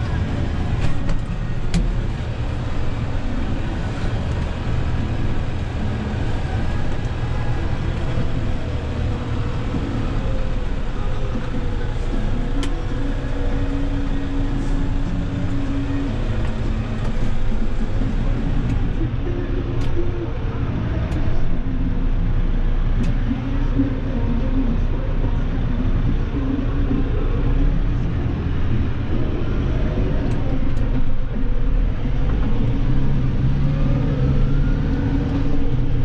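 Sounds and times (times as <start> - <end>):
diesel tractor engine running: 0.0 - 36.0
steady whine: 0.0 - 36.0.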